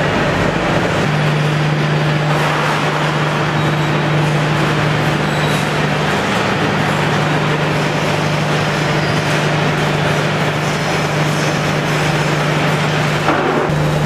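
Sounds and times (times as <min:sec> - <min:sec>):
industrial machinery noise: 0:00.0 - 0:14.0.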